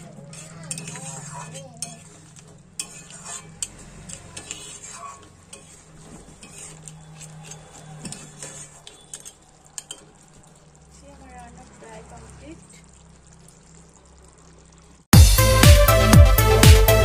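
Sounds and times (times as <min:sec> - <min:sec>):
metal spatula scraping pan: 0:00.0 - 0:10.3.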